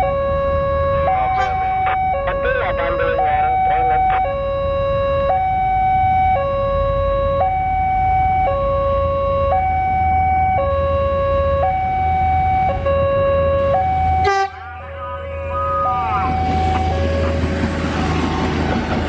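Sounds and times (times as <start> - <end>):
level-crossing alarm two-tone warning: 0.0 - 18.4
steady low rumble: 13.6 - 19.0.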